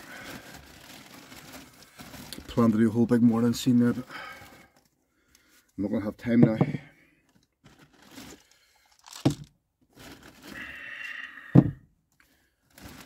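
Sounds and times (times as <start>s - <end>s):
knock of item set down: 6.4s - 6.8s, 11.6s - 11.8s
loud thump: 11.6s - 11.8s.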